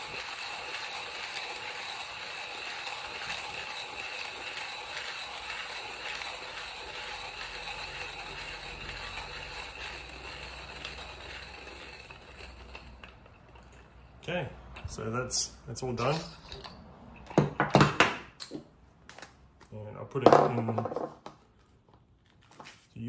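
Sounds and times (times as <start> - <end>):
grinder clicks: 0.0 - 13.9
hand coffee grinder grinding: 0.0 - 14.2.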